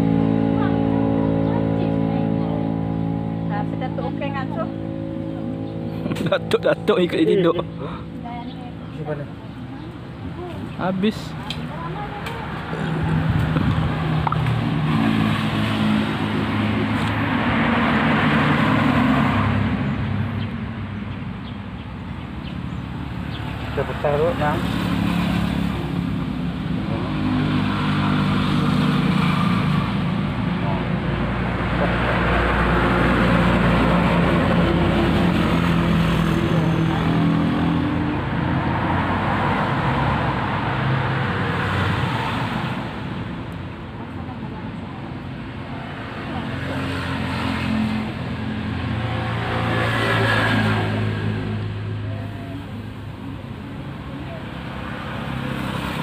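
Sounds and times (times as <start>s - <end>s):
vehicle passing on road: 0.0s - 56.0s
car driving past: 45.6s - 53.2s.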